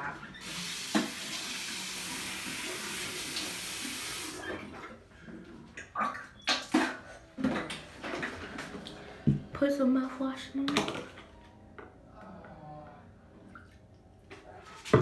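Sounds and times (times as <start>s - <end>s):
sink tap running: 0.4s - 4.4s.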